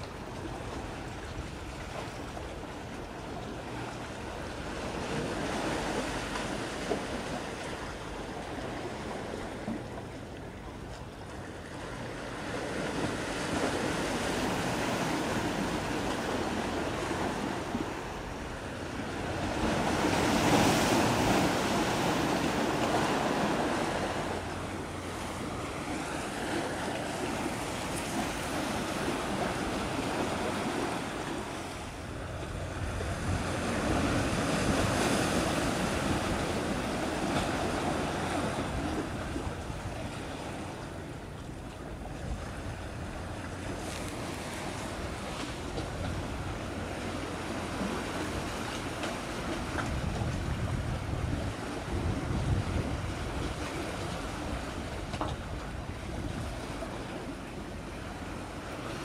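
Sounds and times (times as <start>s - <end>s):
sea waves: 0.0s - 59.0s
wind gusting across microphone: 12.1s - 59.0s.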